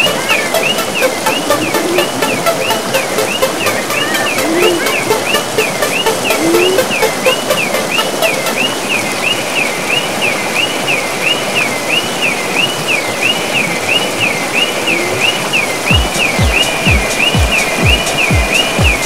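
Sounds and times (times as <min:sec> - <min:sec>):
bass beat: 0:00.0 - 0:08.6, 0:15.9 - 0:19.0
electronic warble: 0:00.0 - 0:09.0
floodwater rushing: 0:00.0 - 0:19.0.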